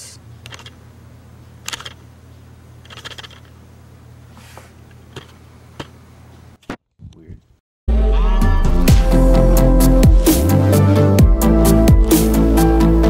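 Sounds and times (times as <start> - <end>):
camera lens clicking and rattling: 1.6 - 2.0, 2.8 - 3.5.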